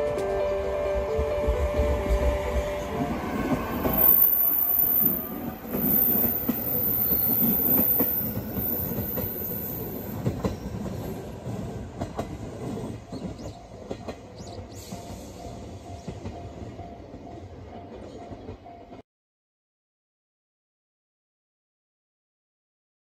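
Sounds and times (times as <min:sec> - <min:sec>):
train wheels rumbling and clacking: 0:00.0 - 0:19.0
high squeal: 0:02.6 - 0:10.7.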